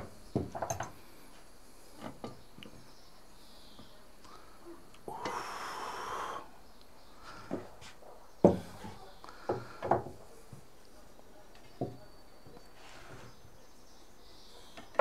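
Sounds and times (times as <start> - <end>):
hiss: 5.1 - 6.6.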